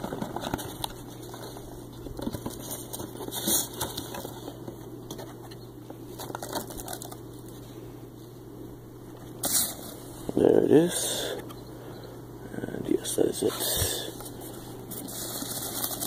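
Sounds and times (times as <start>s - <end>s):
foam packing peanuts rustling: 0.0s - 4.6s, 9.4s - 10.1s, 14.4s - 16.0s.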